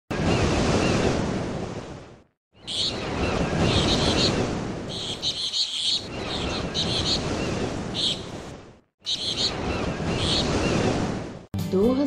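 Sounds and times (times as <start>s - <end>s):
birds chirping: 2.5s - 11.0s.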